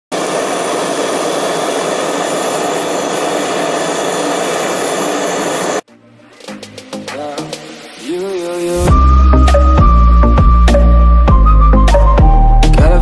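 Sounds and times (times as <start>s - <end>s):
torch burning with loud hiss: 0.1s - 5.8s
music: 5.9s - 13.0s.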